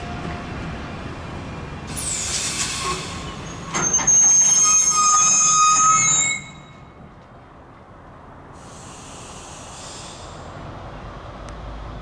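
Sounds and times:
train wheels screeching on rails: 0:01.9 - 0:07.0, 0:08.5 - 0:10.6.

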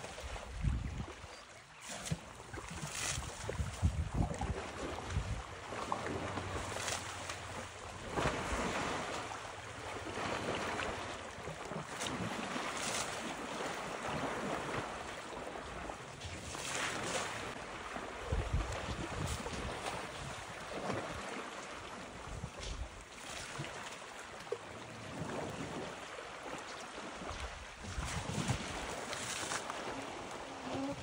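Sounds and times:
water splashing and sloshing: 0:00.0 - 0:31.0
wind buffeting microphone: 0:00.4 - 0:01.2, 0:03.2 - 0:05.5, 0:18.2 - 0:20.5.

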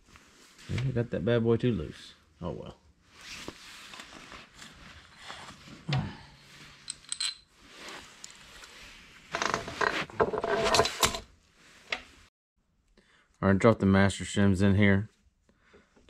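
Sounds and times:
metal parts clinking and knocking: 0:06.8 - 0:07.5, 0:09.3 - 0:11.2.

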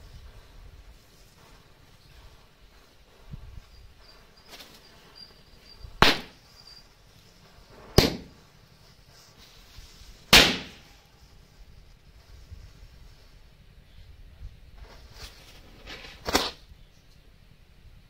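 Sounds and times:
firecracker bangs: 0:06.0 - 0:06.5, 0:07.8 - 0:08.4, 0:10.3 - 0:10.9.

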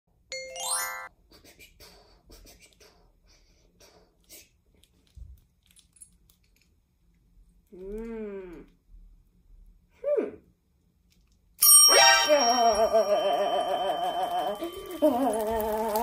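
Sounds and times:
puppet rustling and clicking: 0:04.2 - 0:08.0, 0:13.6 - 0:16.0
person humming: 0:12.4 - 0:16.0.

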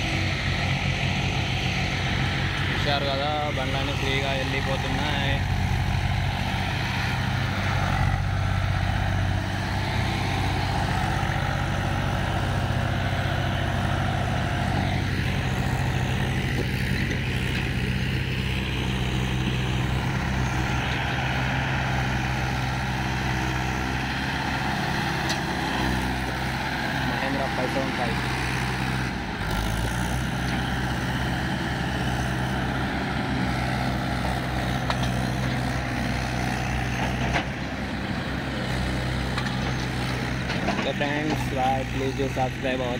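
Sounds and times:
tractor engines droning: 0:00.0 - 0:42.9.

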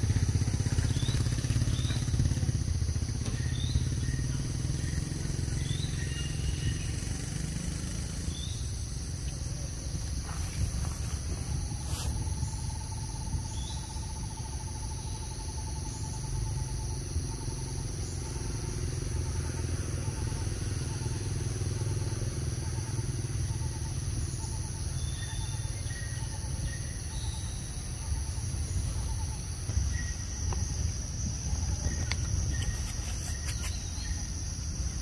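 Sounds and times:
high insect drone: 0:00.0 - 0:35.0
bird chirps: 0:00.4 - 0:02.6, 0:03.2 - 0:07.1, 0:31.5 - 0:34.4
constant low rumble: 0:08.1 - 0:35.0.

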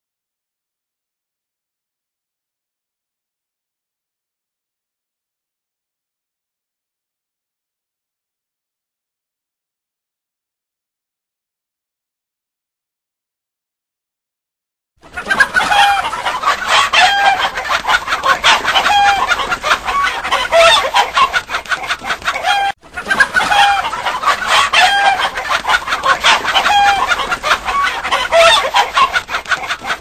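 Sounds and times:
chickens clucking: 0:15.1 - 0:30.0.

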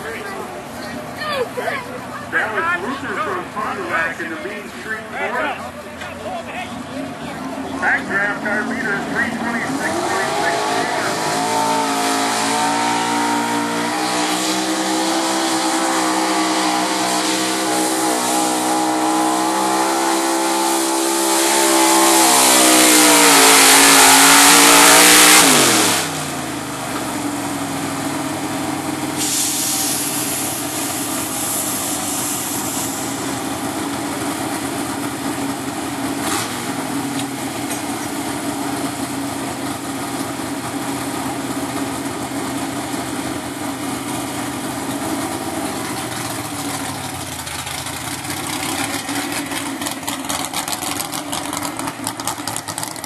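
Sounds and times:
truck engine idling: 0:00.0 - 0:14.0, 0:26.0 - 0:53.0
truck engine revving under load: 0:00.0 - 0:53.0.

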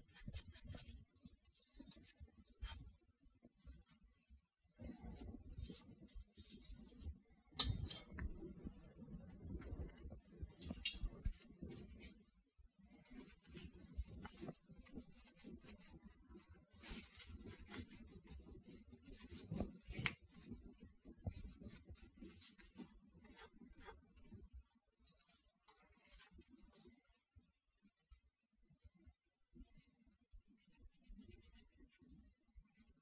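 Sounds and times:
metal part clicks and knocks: 0:07.6 - 0:08.2, 0:10.6 - 0:11.1.

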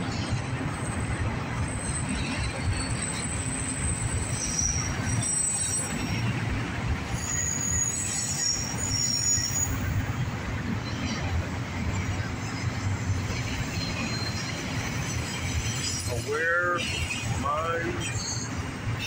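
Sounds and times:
steel wheels rumbling on rail: 0:00.0 - 0:19.0
high-pitched wheel squeals: 0:01.6 - 0:06.4, 0:07.1 - 0:10.1, 0:13.1 - 0:19.0.

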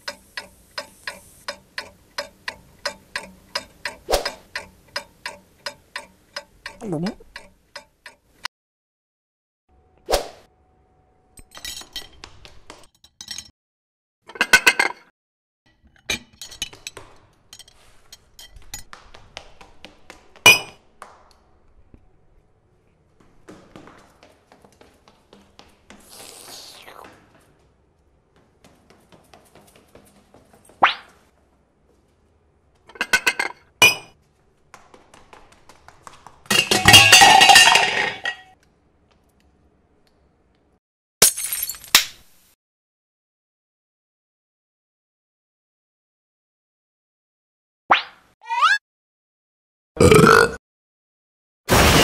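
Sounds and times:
dishes clinking: 0:00.0 - 0:08.4, 0:15.8 - 0:19.0, 0:20.4 - 0:20.8, 0:32.9 - 0:34.2, 0:36.5 - 0:38.6
clatter of plates and cutlery: 0:14.3 - 0:15.1, 0:15.8 - 0:19.0, 0:32.9 - 0:34.2, 0:36.5 - 0:38.6
small dish clinks: 0:20.5 - 0:20.8, 0:36.5 - 0:38.6.

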